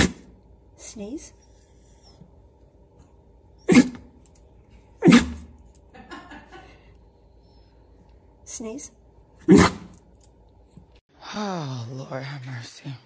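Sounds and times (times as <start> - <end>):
dog sneezing: 3.6 - 4.2, 5.0 - 5.6, 9.4 - 10.0.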